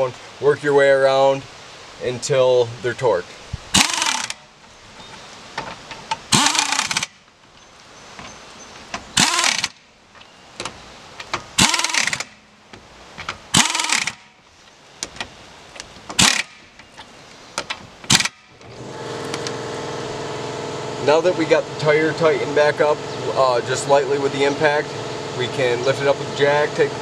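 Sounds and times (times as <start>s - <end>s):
pneumatic impact wrench bursts: 3.7s - 4.5s, 6.2s - 7.3s, 9.0s - 9.9s, 11.5s - 12.5s, 13.5s - 14.4s, 16.1s - 16.8s, 18.0s - 20.4s.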